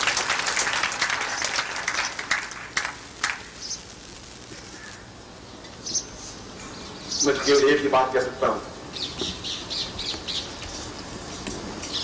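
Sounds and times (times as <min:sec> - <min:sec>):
audience applause: 0:00.0 - 0:03.6.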